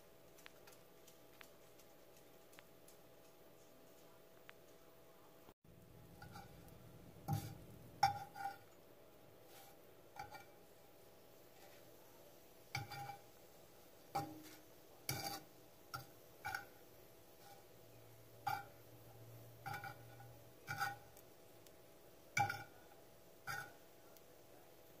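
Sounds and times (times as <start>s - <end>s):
fork clinking on frying pan: 10.2s - 10.6s, 12.8s - 13.2s, 14.2s - 16.8s, 18.4s - 18.8s, 19.6s - 21.1s, 22.4s - 22.8s, 23.5s - 23.8s.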